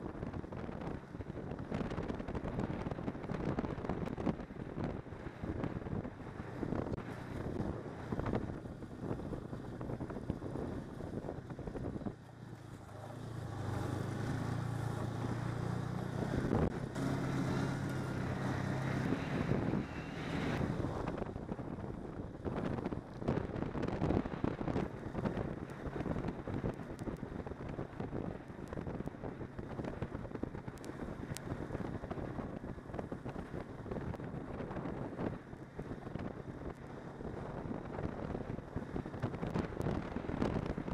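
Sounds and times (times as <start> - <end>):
snowmobile engine running: 0.0 - 29.0
wind buffeting microphone: 0.0 - 40.9.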